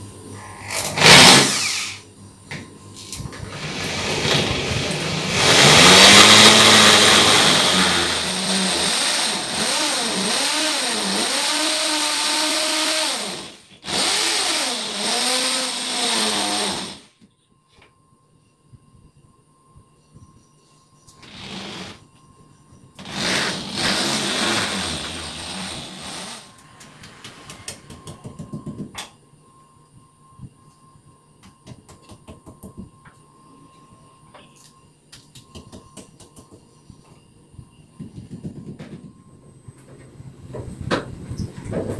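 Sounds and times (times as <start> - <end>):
electric drill boring into wall: 0.7 - 2.0, 3.4 - 17.1, 21.2 - 22.0, 23.0 - 26.6
faint steady high tone: 17.1 - 21.2, 26.5 - 31.6, 32.6 - 40.5.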